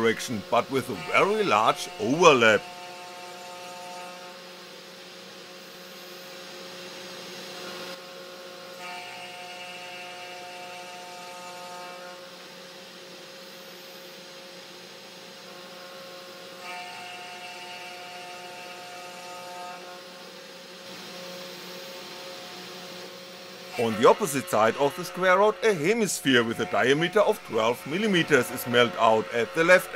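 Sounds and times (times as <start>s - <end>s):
high multi-tone whine: 0.0s - 2.8s, 20.9s - 29.9s
end mill cutting acrylic: 0.0s - 4.3s, 23.0s - 29.9s
router spindle motor running: 0.0s - 29.9s.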